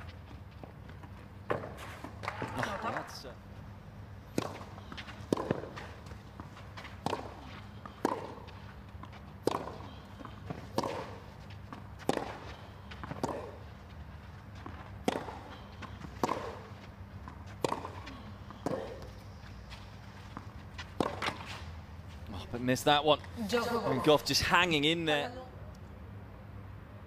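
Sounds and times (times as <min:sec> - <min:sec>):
tennis ball hit by racquets: 0:04.3 - 0:13.7, 0:14.6 - 0:19.4, 0:20.3 - 0:21.7.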